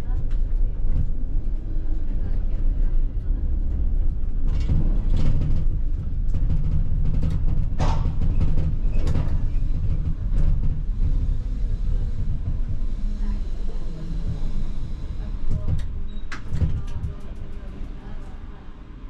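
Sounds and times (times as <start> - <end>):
tram rumbling along track: 0.0 - 19.0
sharp clacks from rails: 4.0 - 11.5.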